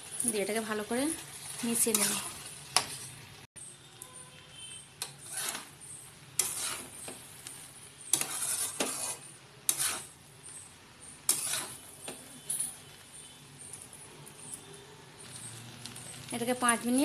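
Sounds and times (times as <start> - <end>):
spatula scraping metal pan: 1.8 - 3.0, 5.0 - 5.8, 6.4 - 10.2, 11.2 - 12.3.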